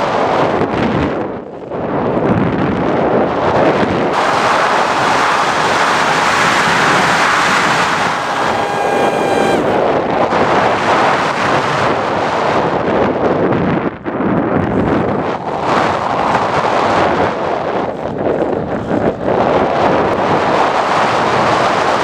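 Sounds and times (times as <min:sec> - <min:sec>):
wind rushing over microphone: 0:00.0 - 0:22.0
electric motor whine: 0:07.9 - 0:09.8.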